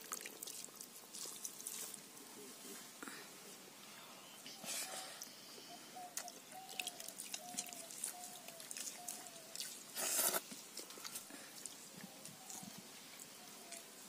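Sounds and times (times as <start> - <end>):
rustle: 0.0 - 14.0
chewing: 6.2 - 13.9.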